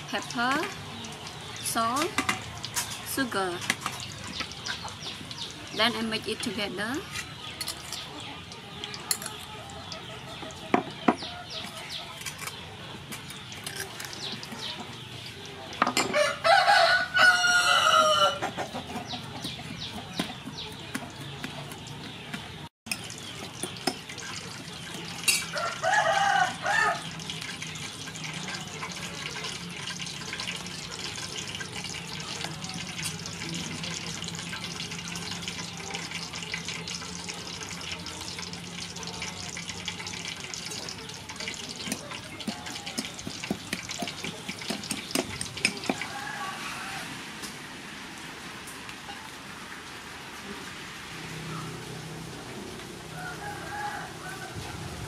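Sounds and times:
metal spoon clinking in bowl: 7.6s - 8.1s, 25.2s - 25.6s, 41.8s - 46.0s
rooster crowing: 16.0s - 18.5s, 25.5s - 27.1s, 45.6s - 47.3s, 53.1s - 55.0s.

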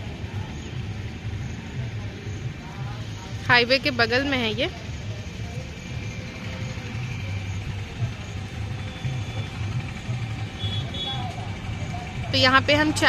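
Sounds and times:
highway traffic rumble: 0.0s - 13.0s
heavy trucks passing: 2.9s - 13.0s.

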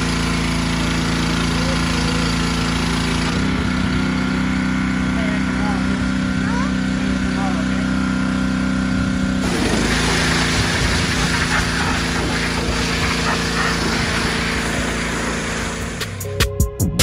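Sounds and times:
pressure washer running: 0.0s - 16.4s
water jet hissing on concrete: 9.4s - 16.2s.

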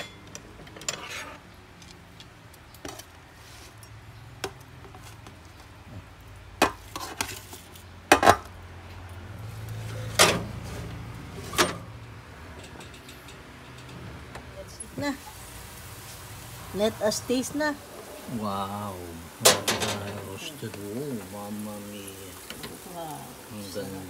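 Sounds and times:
metal utensils clinking on pan: 12.5s - 14.0s, 19.4s - 20.5s.

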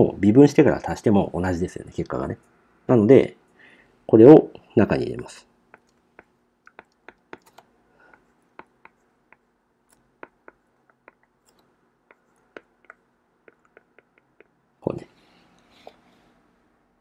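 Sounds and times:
stylus tapping on tablet screen: 5.7s - 14.6s.

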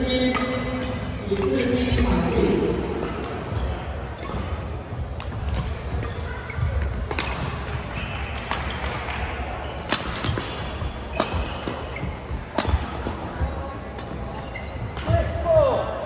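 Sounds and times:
racket striking shuttlecock: 0.2s - 4.6s, 5.2s - 9.0s, 9.8s - 13.4s.

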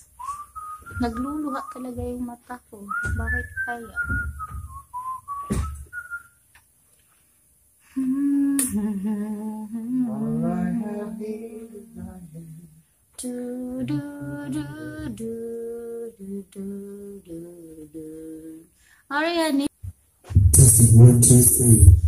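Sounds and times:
whistled note: 0.0s - 2.0s, 2.9s - 6.4s
person humming: 7.9s - 18.7s, 20.4s - 22.0s.

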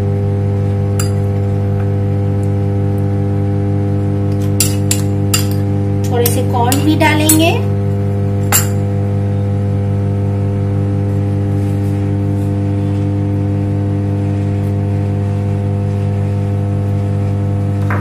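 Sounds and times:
microwave oven hum: 0.0s - 18.0s
metal spoon clinking bowl: 4.6s - 5.6s, 8.5s - 8.8s.

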